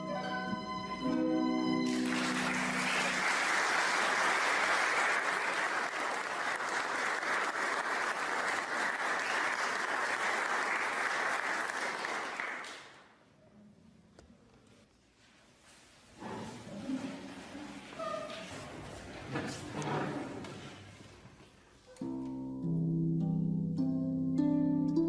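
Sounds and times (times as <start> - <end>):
congregation applauding: 1.8 - 13.1
held notes of music: 22.0 - 25.0.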